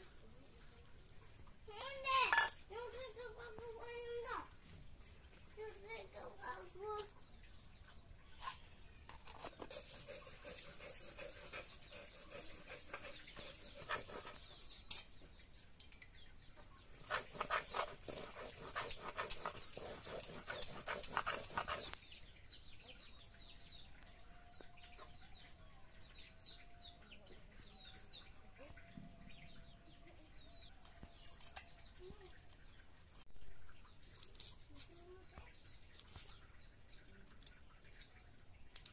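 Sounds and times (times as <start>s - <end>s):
grinding stone scraping on slab: 17.0s - 22.0s.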